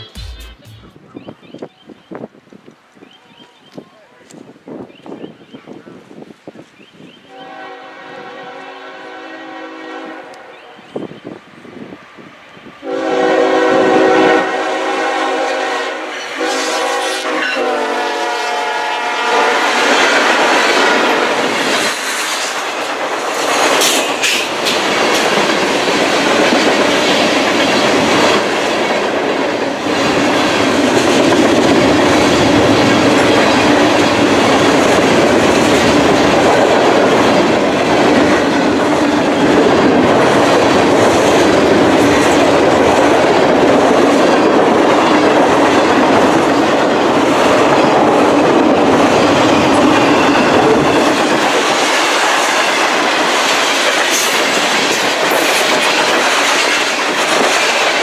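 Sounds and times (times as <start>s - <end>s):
train cars rumbling over rails: 0.0s - 58.0s
train air horn: 7.3s - 11.0s, 12.8s - 21.6s.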